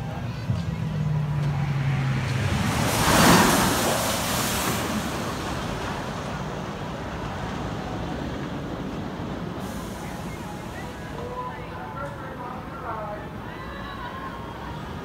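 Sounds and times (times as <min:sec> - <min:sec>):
roller coaster whoosh: 0:00.5 - 0:11.2.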